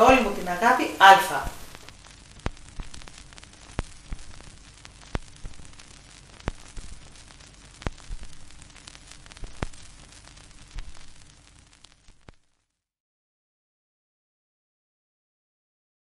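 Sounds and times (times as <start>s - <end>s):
faint steady hum: 0.0s - 12.7s
record hiss and crackle: 0.0s - 12.9s
sharp pops: 0.1s - 12.4s.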